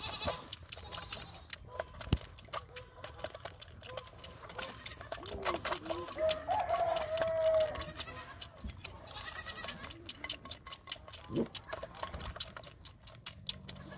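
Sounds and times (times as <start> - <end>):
goat sucking on bottle: 0.0 - 13.9
high-pitched animal call: 4.6 - 8.5.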